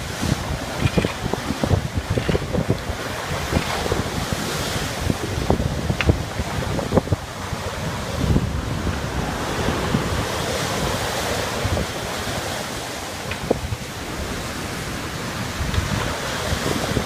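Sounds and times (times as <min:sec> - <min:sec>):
large waves breaking: 0:00.0 - 0:17.0
wind buffeting microphone: 0:00.0 - 0:17.0.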